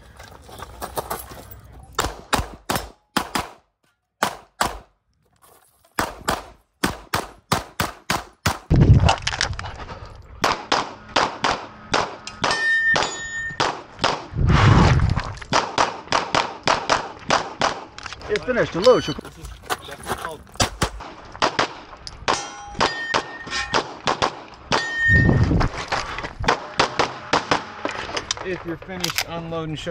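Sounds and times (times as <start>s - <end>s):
rapid pistol shots: 2.0s - 3.6s, 6.0s - 8.7s, 10.4s - 14.3s, 15.5s - 17.9s, 20.6s - 24.8s, 26.5s - 27.8s
steel targets clanging: 12.2s - 13.6s, 22.2s - 24.0s, 24.7s - 25.3s
short metallic ringing tone: 12.5s - 13.6s, 24.8s - 25.4s.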